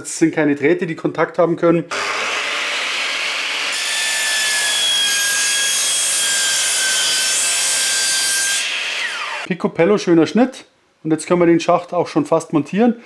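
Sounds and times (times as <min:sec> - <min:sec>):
mitre saw cutting metal: 0:01.9 - 0:09.5.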